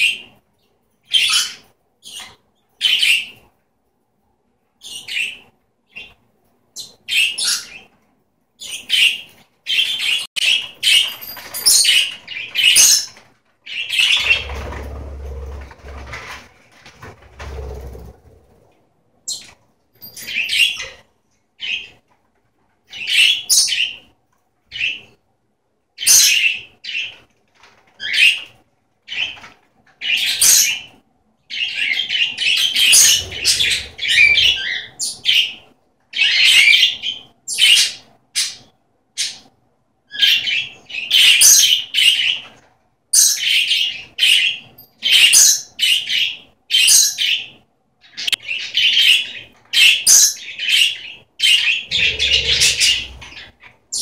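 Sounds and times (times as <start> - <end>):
budgerigars chirping and squawking: 1.0 - 3.5, 4.8 - 6.2, 6.8 - 8.0, 8.6 - 16.4, 19.3 - 22.0, 22.9 - 24.1, 24.7 - 25.2, 26.0 - 27.3, 28.0 - 39.5, 40.1 - 42.6, 43.2 - 54.0.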